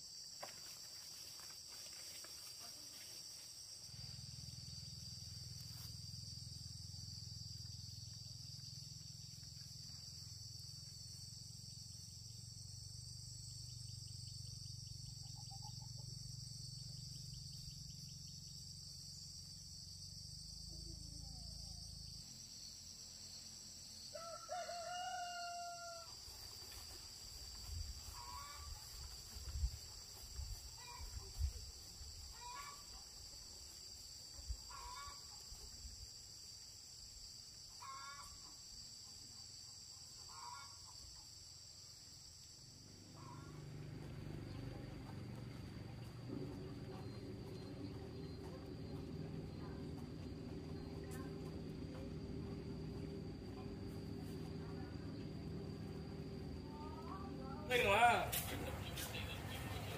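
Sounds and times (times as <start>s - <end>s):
high drone of insects: 0.0s - 59.9s
rooster crowing: 24.1s - 26.2s.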